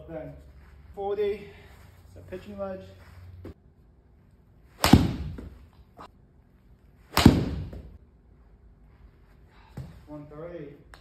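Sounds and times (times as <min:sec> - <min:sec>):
golf club striking ball: 0:04.8 - 0:05.6, 0:07.1 - 0:07.9.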